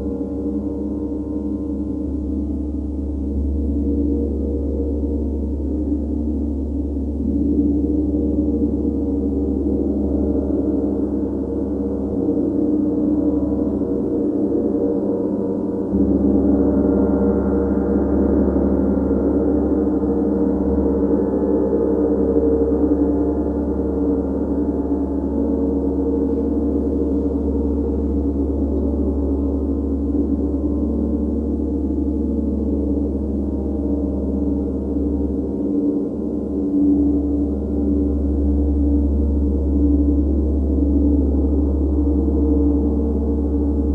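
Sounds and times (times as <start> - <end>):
gong drone: 0.0 - 43.9.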